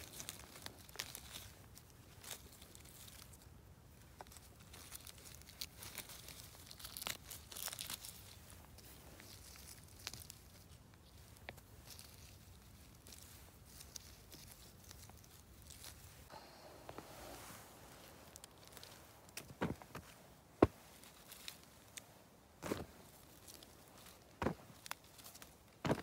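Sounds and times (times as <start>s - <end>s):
mushrooms tearing from ground: 0.0s - 3.4s, 4.2s - 8.4s
hands rustling leaves and moss: 0.0s - 26.0s.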